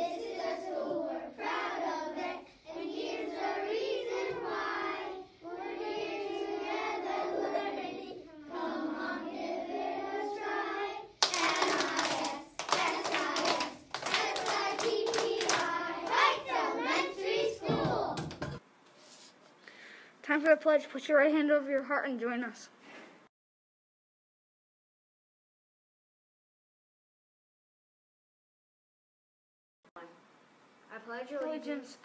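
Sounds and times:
children singing together: 0:00.0 - 0:18.2
hand claps: 0:11.2 - 0:16.3.

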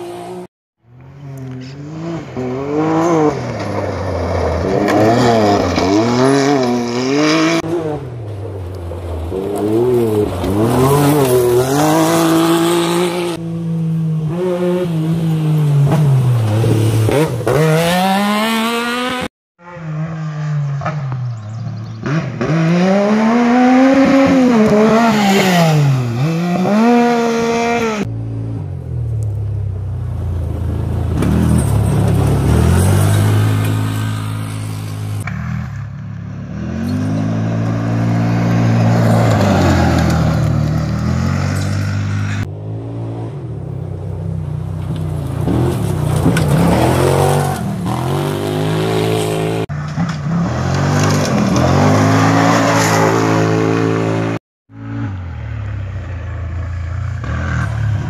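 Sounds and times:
engines revving up and down: 0:00.0 - 0:08.2, 0:09.2 - 0:28.5, 0:31.1 - 0:44.2, 0:44.8 - 0:56.3.

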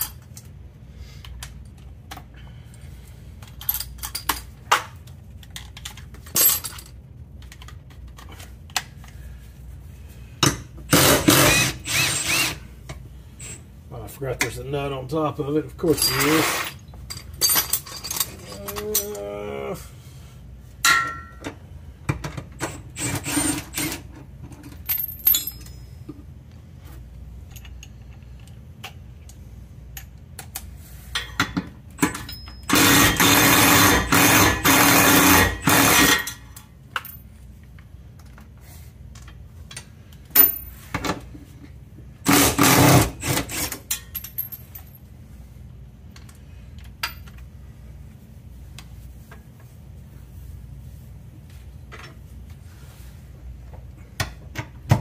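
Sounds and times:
cordless power tool running: 0:11.0 - 0:12.6
hand tools clicking and clinking: 0:15.9 - 0:19.3, 0:30.0 - 0:37.2.

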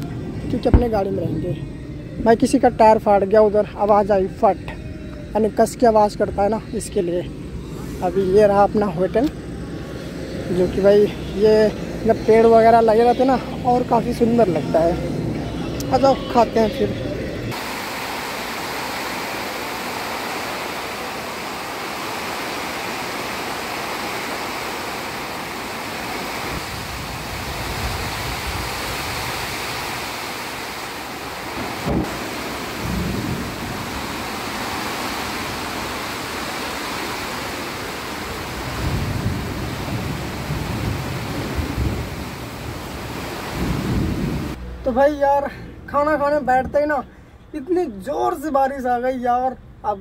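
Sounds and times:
thunder rumbling: 0:00.0 - 0:03.1, 0:26.4 - 0:29.8, 0:31.4 - 0:35.9, 0:37.9 - 0:44.6
heavy rain on a tin roof: 0:17.5 - 0:44.6.

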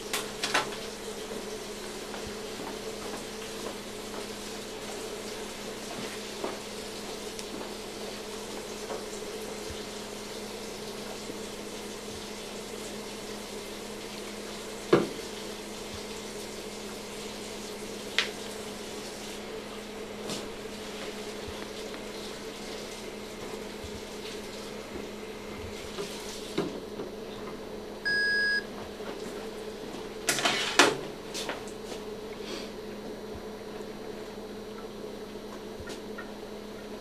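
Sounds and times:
electrical hum: 0:00.0 - 0:37.0
patient monitor beep: 0:28.0 - 0:28.7.

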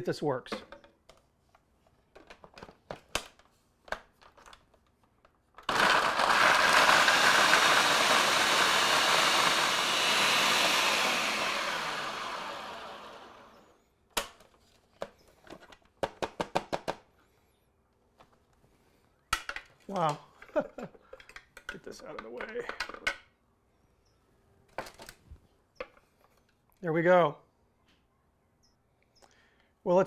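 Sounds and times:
blender grinding: 0:05.6 - 0:13.8.

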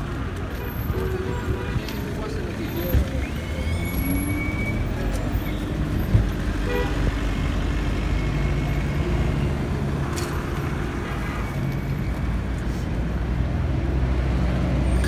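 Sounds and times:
car horn toot: 0:06.6 - 0:07.1.

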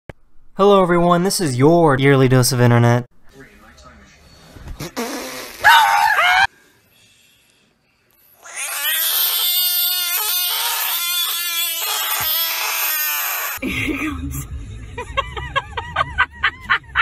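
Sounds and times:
cat yowling: 0:05.6 - 0:06.5
frog screaming: 0:05.6 - 0:06.5, 0:08.4 - 0:13.6.

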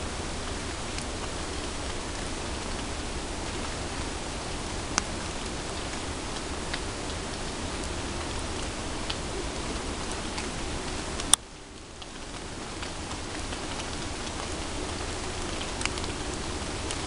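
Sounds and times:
rain-like background hiss: 0:00.0 - 0:17.0
faint ticks: 0:04.9 - 0:17.0.

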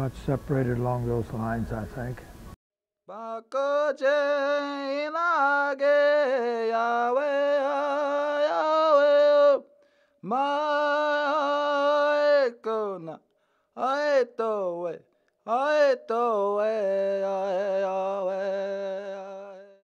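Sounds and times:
man chanting unaccompanied: 0:00.0 - 0:02.4.

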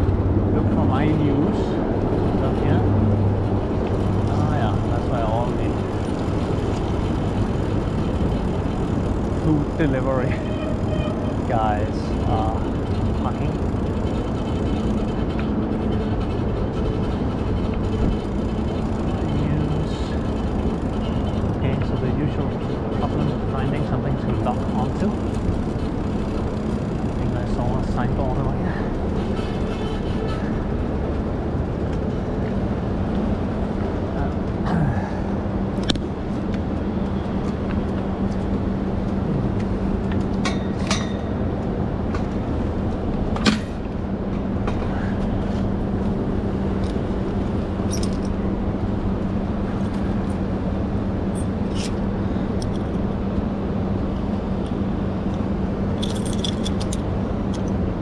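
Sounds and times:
city street noise: 0:00.0 - 0:58.0
low hum: 0:00.0 - 0:58.0
bike clicks: 0:10.6 - 0:21.9, 0:24.3 - 0:27.8, 0:35.8 - 0:41.4
keys jangling: 0:47.8 - 0:48.4, 0:56.0 - 0:57.8.

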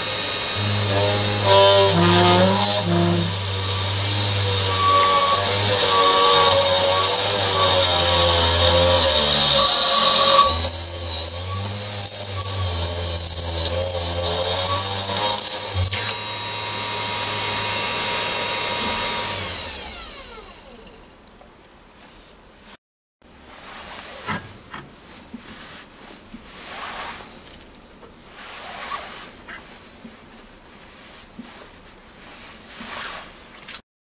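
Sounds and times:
drill bit cutting metal: 0:00.0 - 0:19.6
spindle motor whine: 0:00.0 - 0:20.7.

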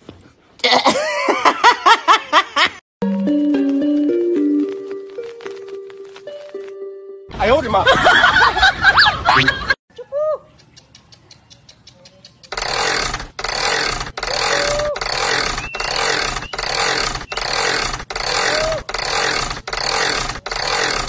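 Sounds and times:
rhythmic scraping: 0:12.4 - 0:21.0.

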